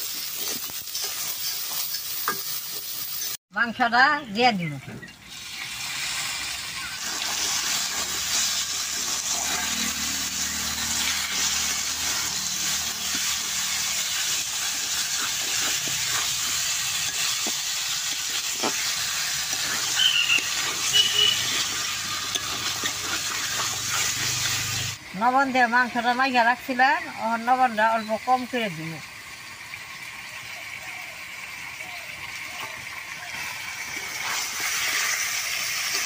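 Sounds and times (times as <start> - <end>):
chicken sizzling in hot oil: 0.0 - 3.4, 5.0 - 36.0
metal spatula scraping pan: 7.0 - 25.0.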